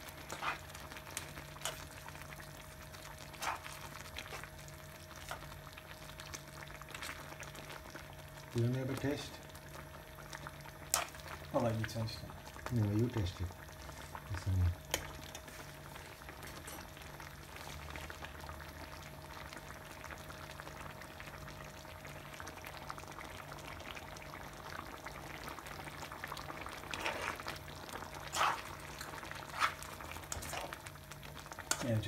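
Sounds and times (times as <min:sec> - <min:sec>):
sauce bubbling in a pan: 0:00.0 - 0:32.0.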